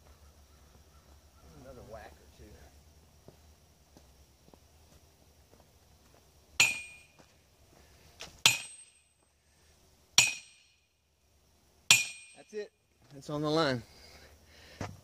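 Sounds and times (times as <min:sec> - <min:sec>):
sledgehammer clanging on metal post: 0:06.6 - 0:07.2, 0:08.4 - 0:09.2, 0:10.2 - 0:10.8, 0:11.9 - 0:12.7.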